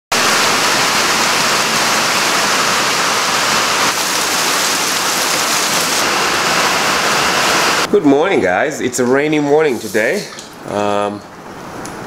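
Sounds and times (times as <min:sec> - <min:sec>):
heavy rain on leaves: 0:00.1 - 0:07.9.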